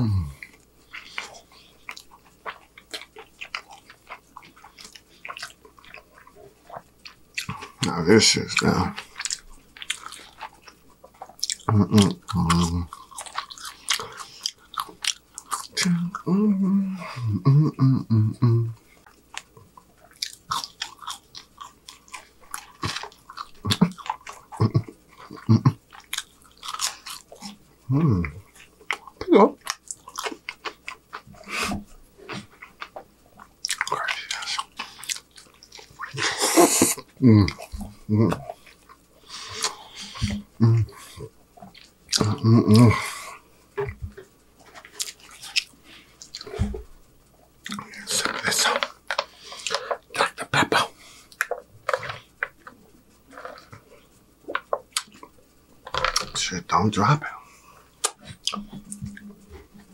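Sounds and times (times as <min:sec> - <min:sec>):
person humming: 0:00.0 - 0:00.4, 0:15.8 - 0:18.8, 0:27.9 - 0:28.4, 0:36.2 - 0:38.5, 0:40.0 - 0:41.0, 0:42.2 - 0:43.1
person chewing food: 0:00.0 - 0:16.4, 0:18.7 - 0:59.9.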